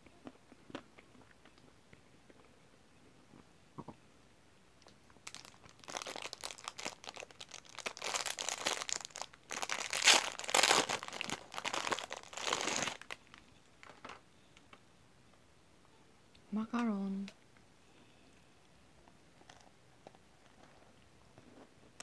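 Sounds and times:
plastic wrapper crinkling: 0:05.2 - 0:14.2.

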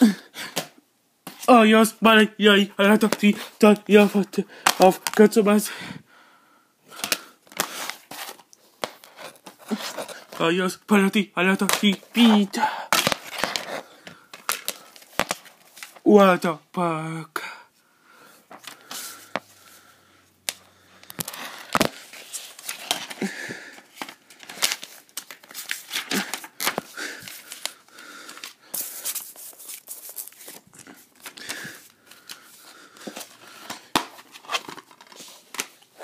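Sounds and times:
handling noise rustling and rubbing: 0:07.6 - 0:10.5, 0:20.5 - 0:36.0.

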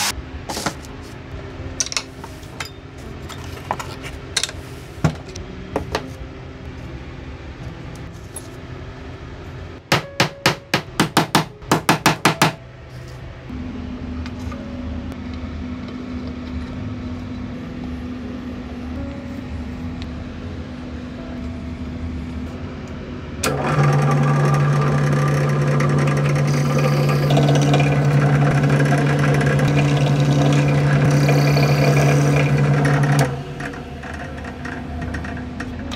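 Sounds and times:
hammer striking wood: 0:09.9 - 0:12.6
steady motor hum: 0:13.3 - 0:35.9.

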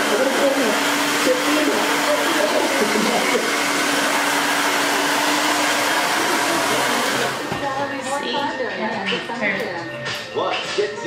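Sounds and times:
hair dryer blowing: 0:00.0 - 0:08.0.

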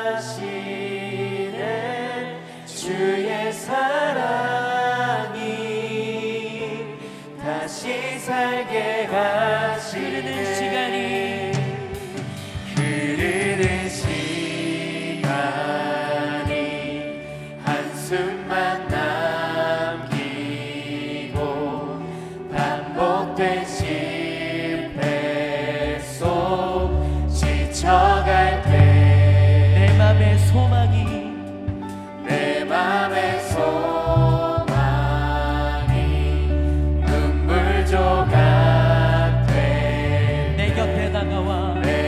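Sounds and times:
worship music with singing: 0:00.0 - 0:42.0
deep steady bass tone: 0:26.4 - 0:31.8.

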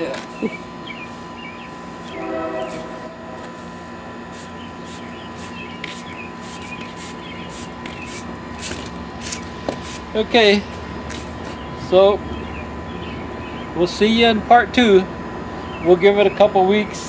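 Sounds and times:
steady background hum: 0:00.0 - 0:17.0
push broom scraping asphalt: 0:01.0 - 0:11.6.

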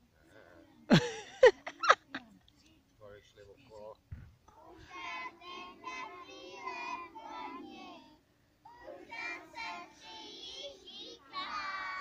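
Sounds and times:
young children singing: 0:04.5 - 0:12.0.

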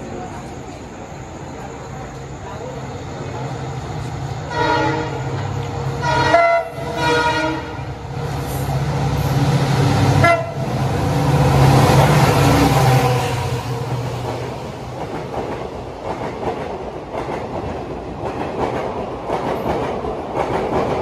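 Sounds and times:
train passing with rushing noise: 0:00.0 - 0:21.0
locomotive horn blasts: 0:04.5 - 0:05.2, 0:06.0 - 0:07.8, 0:10.2 - 0:10.6.

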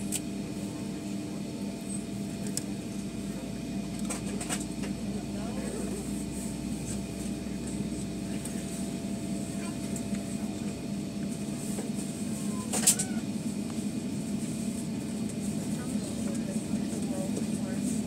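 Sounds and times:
aircraft engines humming at taxi power: 0:00.0 - 0:18.0
sharp click in the cabin: 0:12.7 - 0:13.1.

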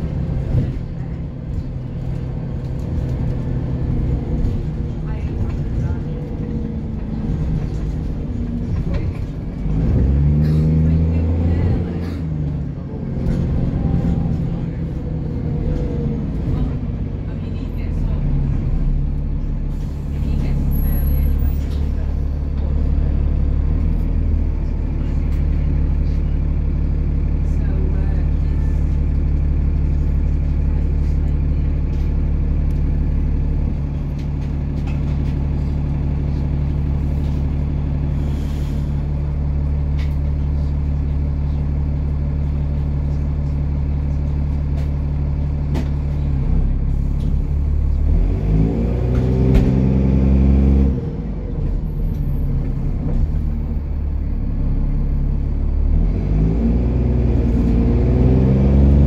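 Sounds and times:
bus diesel engine revving: 0:00.0 - 0:59.0.

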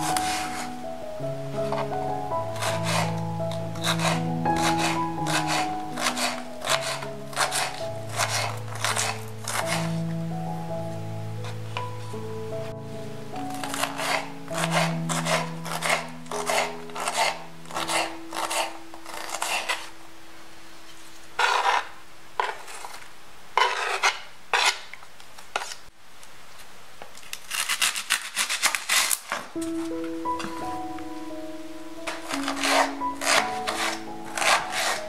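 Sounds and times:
knife chopping on cutting board: 0:03.8 - 0:09.9, 0:13.6 - 0:19.8, 0:32.1 - 0:35.0.

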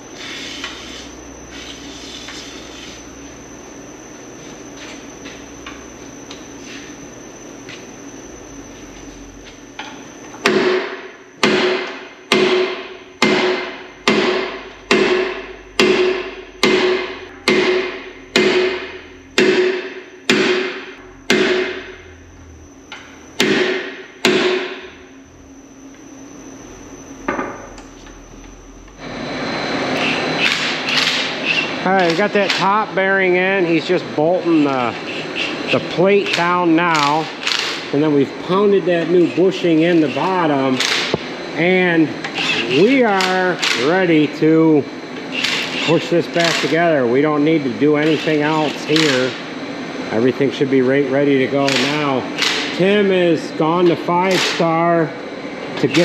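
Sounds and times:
sledgehammer striking steel: 0:10.4 - 0:22.0, 0:23.4 - 0:24.8.

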